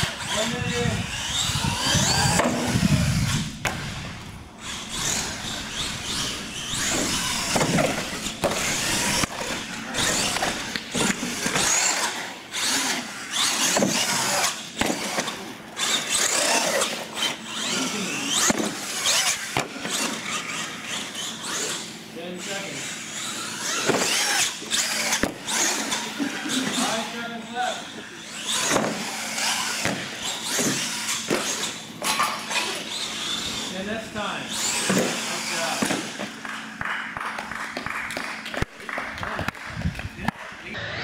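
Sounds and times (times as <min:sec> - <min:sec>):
toy truck electric motors whining: 0:00.0 - 0:36.8.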